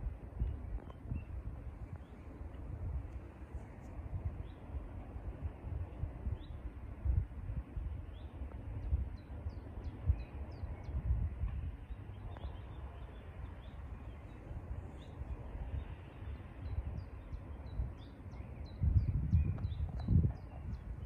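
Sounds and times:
wind buffeting microphone: 0.0s - 21.0s
songbird chirping: 8.0s - 21.0s.

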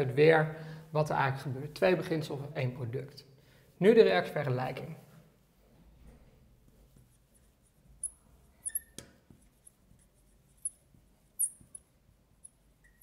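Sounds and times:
marker squeaking on glass: 8.6s - 9.0s.

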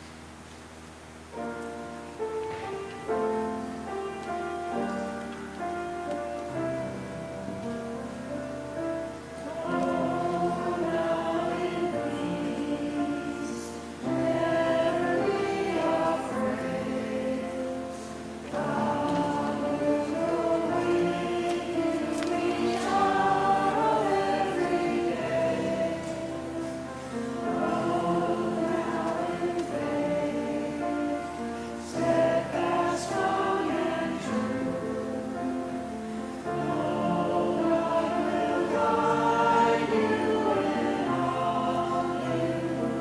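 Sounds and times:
congregation singing in unison: 2.2s - 43.0s.

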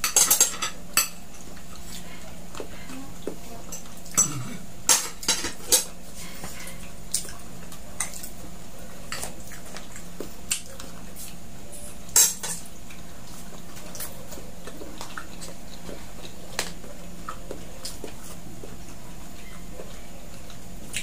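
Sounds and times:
cutlery clatter: 0.0s - 1.2s, 4.2s - 5.9s
cutlery clinking on plates: 0.0s - 1.2s, 3.7s - 5.9s, 12.1s - 12.6s.

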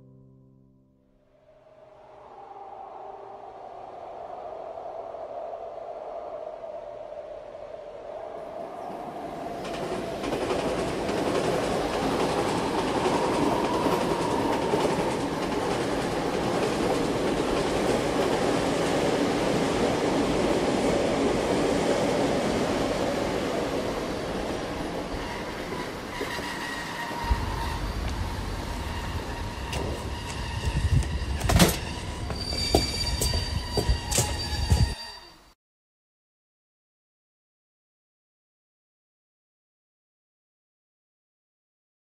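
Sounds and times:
train rumbling on rails: 8.4s - 35.4s.

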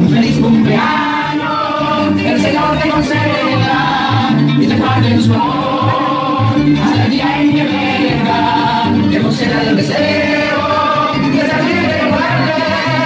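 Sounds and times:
bass line: 0.0s - 13.0s
voices singing together: 0.0s - 13.0s.

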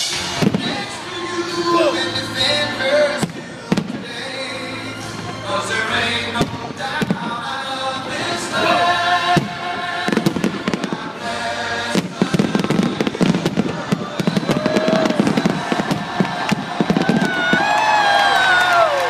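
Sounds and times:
fireworks bursting and crackling: 0.0s - 2.2s, 3.2s - 4.3s, 6.4s - 7.5s, 9.3s - 19.0s
music playing: 0.0s - 19.0s.

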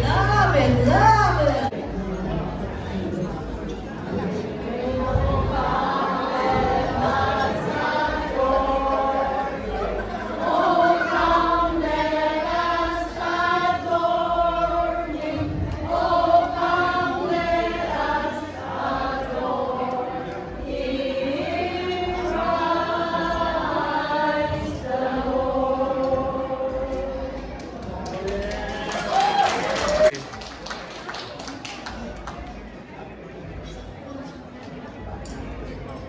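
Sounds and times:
group of voices singing: 0.0s - 2.0s, 4.1s - 29.0s.

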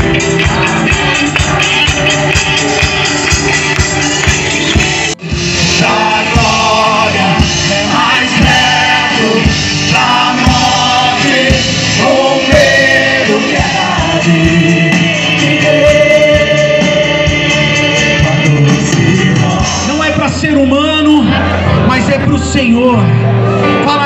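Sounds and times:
drums keeping a steady beat: 0.0s - 21.2s
band playing worship music: 0.0s - 24.0s
person singing: 5.4s - 20.0s.

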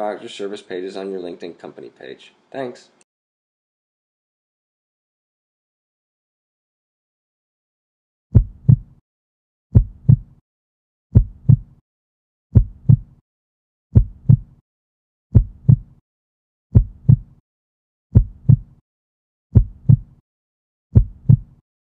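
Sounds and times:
heartbeat thumps: 8.3s - 9.0s, 9.7s - 10.4s, 11.1s - 11.7s, 12.5s - 13.2s, 13.9s - 14.5s, 15.3s - 15.9s, 16.7s - 17.4s, 18.1s - 18.7s, 19.5s - 20.1s, 20.9s - 21.5s.

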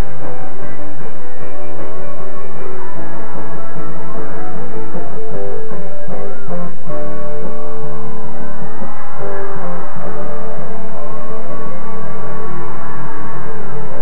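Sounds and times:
electric guitar with gliding pitches: 0.0s - 14.0s.

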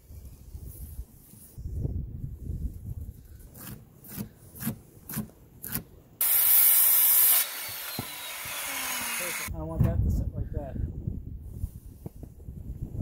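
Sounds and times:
circular saw cutting wood: 6.2s - 9.5s.

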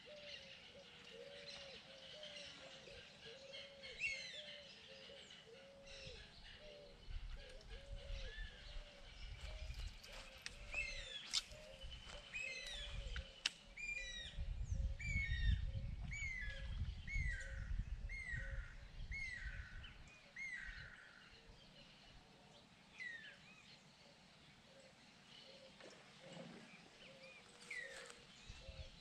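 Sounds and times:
wind rumbling on microphone: 5.9s - 21.0s, 28.0s - 29.0s.

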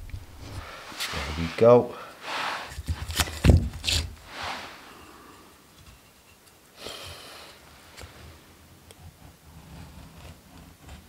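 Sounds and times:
knife scraping wood: 2.2s - 4.9s, 8.9s - 11.0s.

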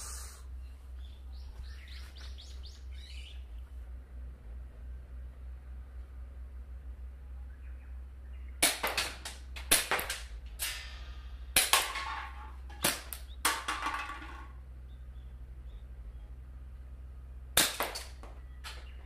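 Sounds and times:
airsoft pistol shots: 8.6s - 11.0s, 17.6s - 18.2s.

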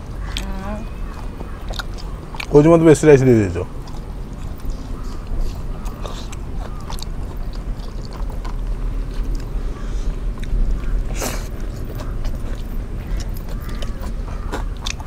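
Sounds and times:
people chewing food: 0.0s - 15.0s
low rumble: 3.3s - 15.0s.

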